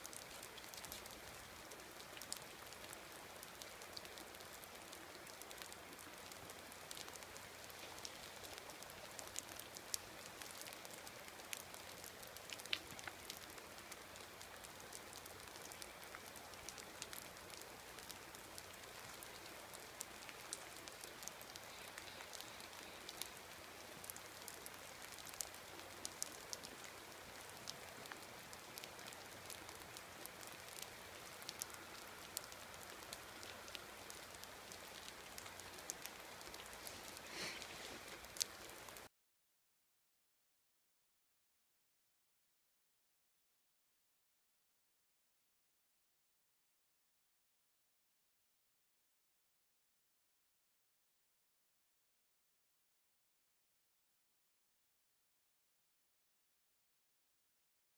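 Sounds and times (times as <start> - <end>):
light rain hiss: 0.0 - 39.1
raindrops ticking: 0.0 - 39.1.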